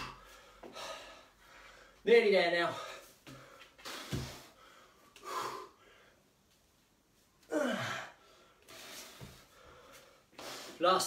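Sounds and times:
man breathing hard: 0.0s - 2.0s, 2.7s - 6.4s, 7.5s - 10.8s.

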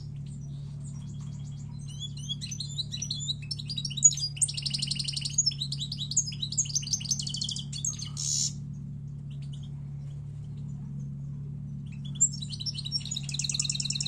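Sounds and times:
goldfinch twittering song: 0.0s - 10.8s, 11.7s - 14.0s
harsh buzzy bird note: 7.4s - 8.6s.

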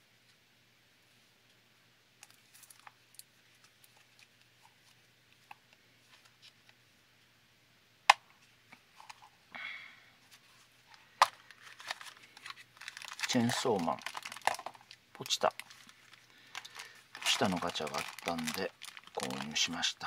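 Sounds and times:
plastic capsule ticks and scrapes: 10.9s - 19.7s.

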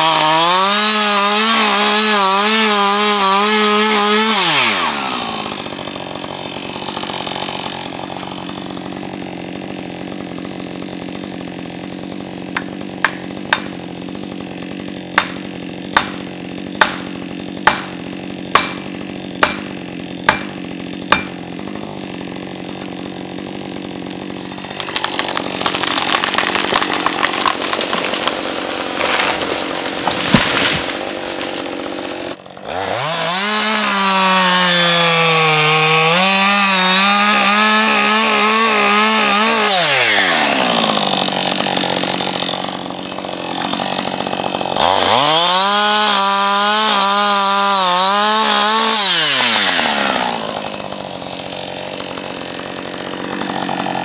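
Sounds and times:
tree cracking and crashing down: 0.0s - 11.4s, 22.1s - 36.6s, 37.2s - 46.8s, 48.1s - 54.0s
chainsaw idling and revving: 0.0s - 54.0s.

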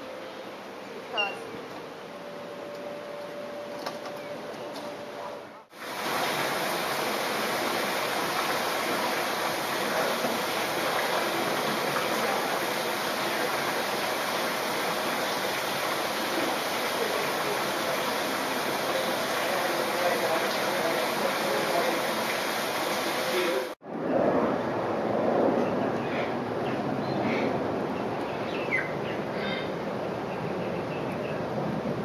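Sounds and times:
aquarium water rushing: 5.7s - 23.8s.

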